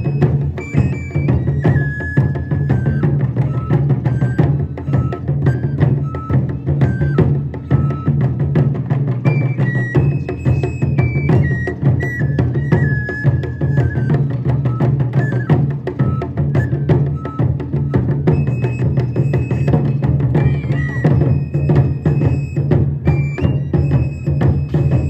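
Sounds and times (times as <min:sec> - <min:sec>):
drums in fast rhythm: 0:00.0 - 0:25.0
high held flute melody: 0:00.0 - 0:25.0.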